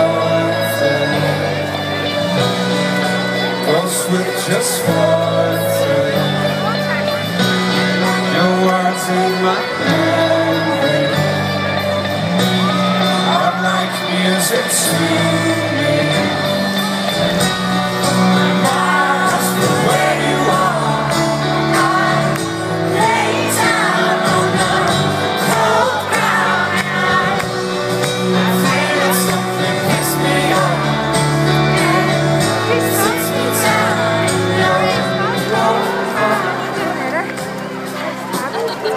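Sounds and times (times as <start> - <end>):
person singing: 0.0 - 37.3
live rock band playing: 0.0 - 38.9.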